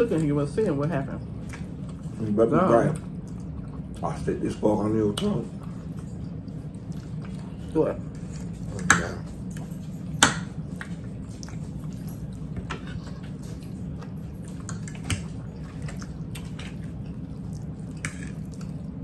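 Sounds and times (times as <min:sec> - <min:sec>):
people chewing: 0:00.0 - 0:19.0
steady low hum: 0:00.0 - 0:19.0
forks scraping on plates: 0:12.1 - 0:13.7.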